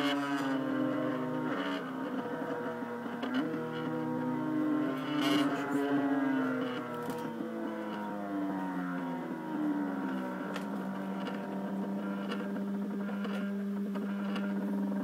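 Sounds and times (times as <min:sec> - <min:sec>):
stepper motors whining hum: 0:00.0 - 0:15.0
faint ticks: 0:10.1 - 0:15.0.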